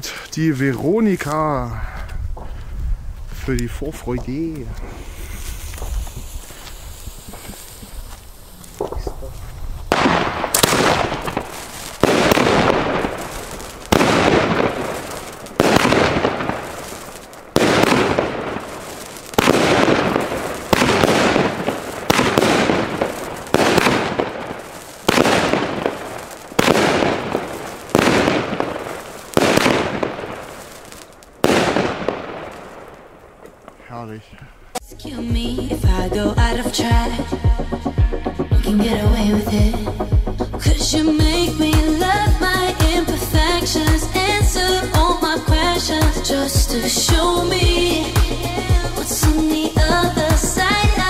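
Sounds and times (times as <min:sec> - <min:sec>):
firework crackling: 0:00.0 - 0:51.0
firework shots launching: 0:04.8 - 0:33.8, 0:40.7 - 0:51.0.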